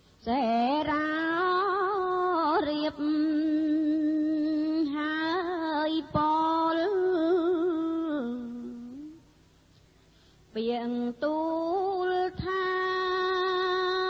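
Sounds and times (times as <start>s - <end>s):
solo voice chanting: 0.2s - 9.3s.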